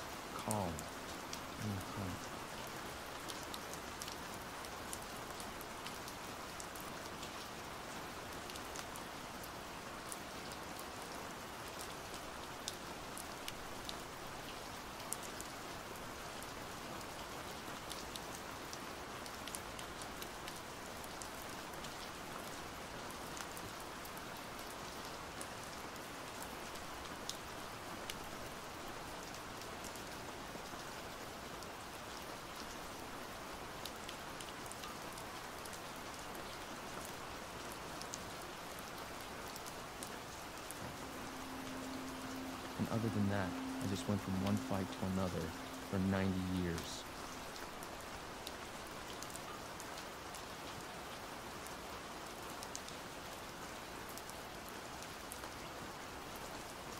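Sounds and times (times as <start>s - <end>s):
heavy rain pouring: 0.0s - 56.9s.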